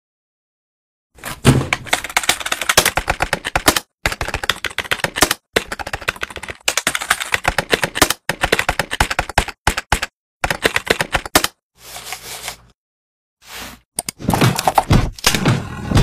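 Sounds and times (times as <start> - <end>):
rapid keyboard typing: 1.6 - 11.6.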